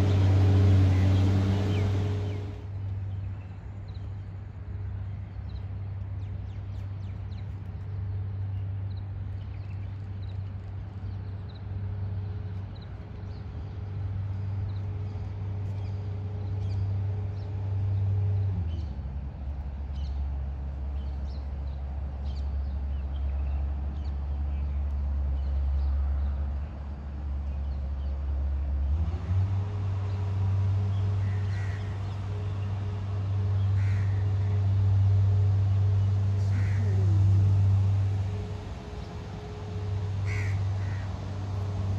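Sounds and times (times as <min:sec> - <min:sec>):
low droning hum: 0:00.0 - 0:41.9.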